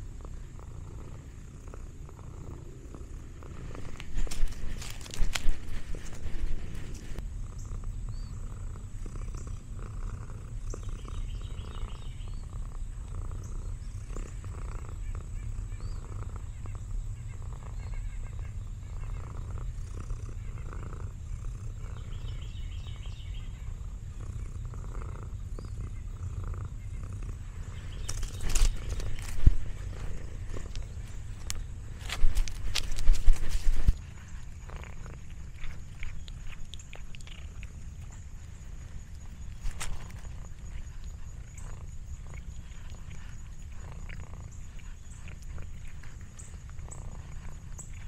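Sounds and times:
cat purring: 0.0s - 48.0s.

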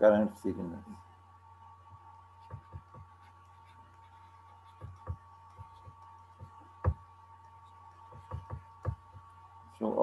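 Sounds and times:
steady low hum: 0.0s - 10.0s
stylus tapping on tablet: 2.4s - 9.4s.

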